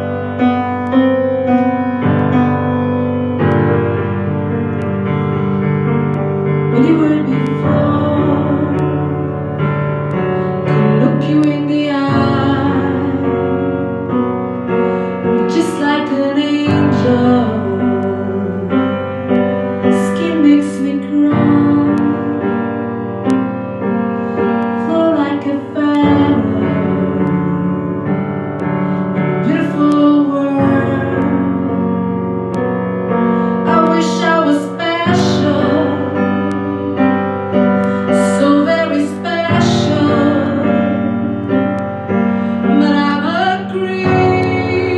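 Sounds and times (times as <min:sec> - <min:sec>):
piano chords: 0:00.0 - 0:44.9
woman singing: 0:06.7 - 0:09.8, 0:10.6 - 0:14.2, 0:15.2 - 0:22.8, 0:24.6 - 0:32.1, 0:33.1 - 0:44.9.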